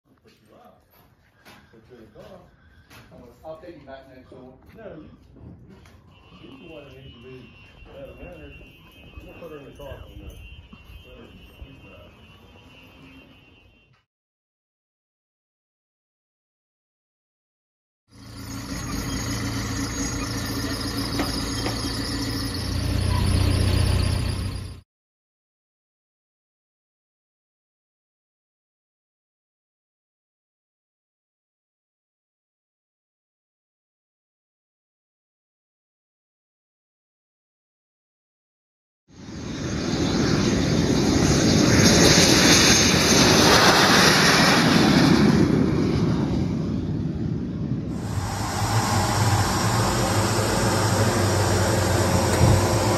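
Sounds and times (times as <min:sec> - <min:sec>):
jet roar with high whine: 0:18.1 - 0:24.8, 0:39.1 - 0:52.9
tow tractor engine running: 0:18.1 - 0:24.8, 0:48.0 - 0:52.9.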